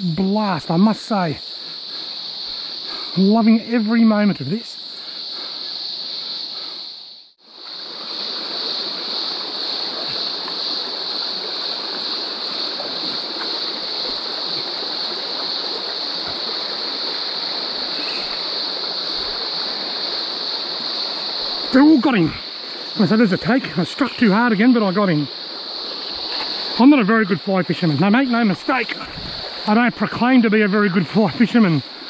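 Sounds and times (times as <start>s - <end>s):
high-pitched insect drone: 0.0s - 32.0s
stream babbling over rocks: 7.6s - 32.0s.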